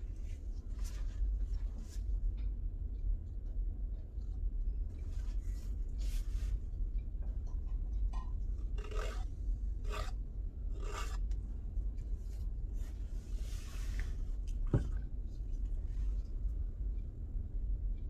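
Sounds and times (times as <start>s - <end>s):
palette knife scraping paint: 8.6s - 11.4s.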